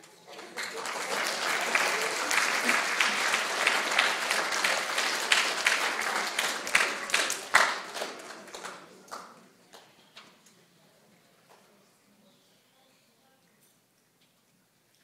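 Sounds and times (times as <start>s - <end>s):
audience applause: 0.2s - 9.3s.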